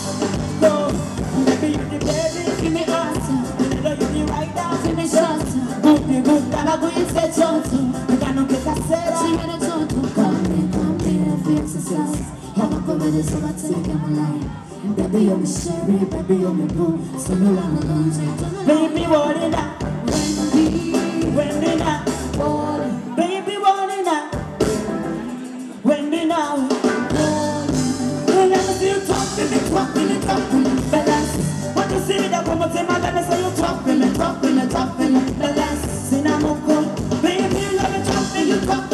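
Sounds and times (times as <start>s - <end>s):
bass guitar: 0.0s - 23.2s, 24.3s - 38.9s
keyboards: 0.0s - 38.9s
woman singing into a microphone: 4.5s - 24.3s.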